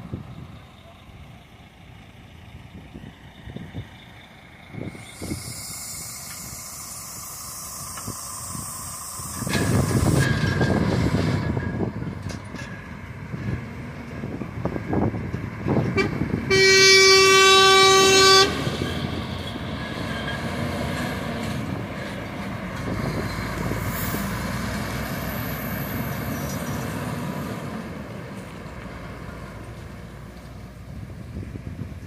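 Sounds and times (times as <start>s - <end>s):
diesel truck driving past: 0.0s - 32.0s
truck horn blast: 15.9s - 19.2s.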